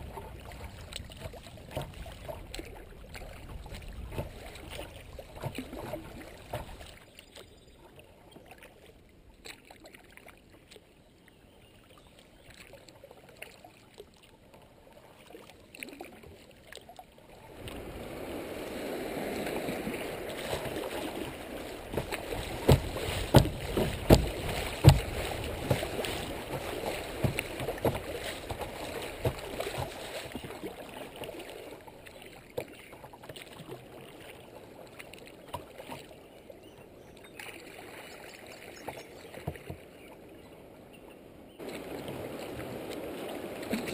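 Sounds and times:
water splashing against hull: 0.0 - 11.0, 11.6 - 40.5, 41.5 - 43.9
water lapping: 0.0 - 43.9
sharp knocks: 21.9 - 25.9.

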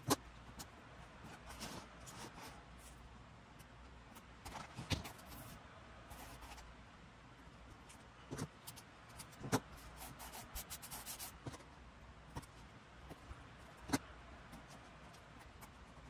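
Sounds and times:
paper rubbing and scratching: 1.2 - 3.0, 8.3 - 11.6.

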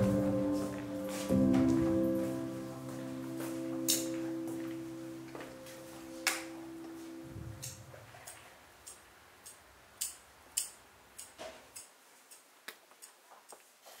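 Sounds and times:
guitar music: 0.0 - 7.8.

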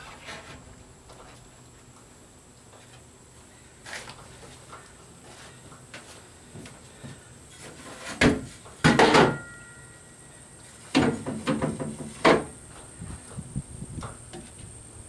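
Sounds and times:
knocks and clunks of plywood: 8.1 - 9.4, 10.9 - 12.6.

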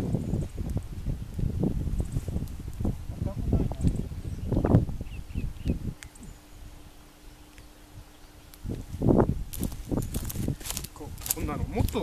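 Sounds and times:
rustling plants and mulch: 0.0 - 12.0
bird chirps: 3.8 - 8.6.

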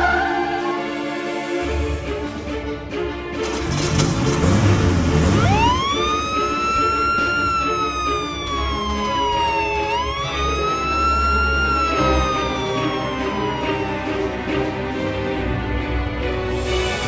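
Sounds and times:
background music: 0.0 - 17.0
wailing siren: 5.1 - 15.7.

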